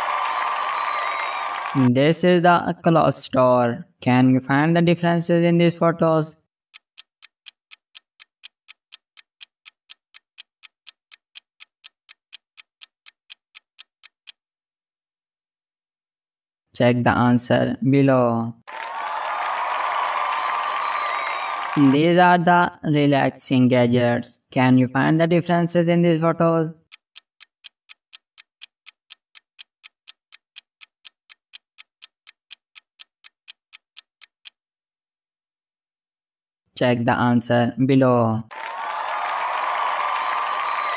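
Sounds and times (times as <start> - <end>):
clock ticking: 6.7 - 14.4, 25.1 - 34.6.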